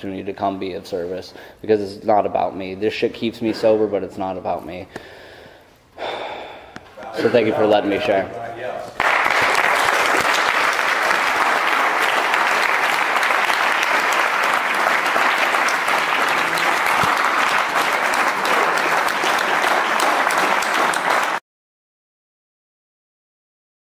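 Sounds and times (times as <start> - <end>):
audience applauding: 9.0 - 21.4.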